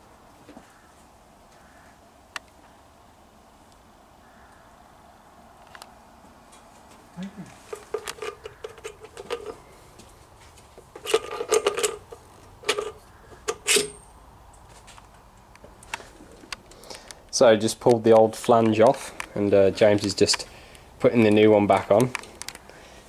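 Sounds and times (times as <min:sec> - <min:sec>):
metallic clinks and knocks: 0:07.7 - 0:09.6, 0:10.9 - 0:14.1.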